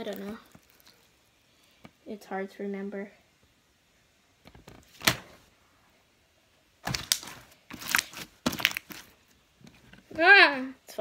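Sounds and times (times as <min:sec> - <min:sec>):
slime clicking and crackling: 0:00.0 - 0:01.0, 0:06.8 - 0:09.1.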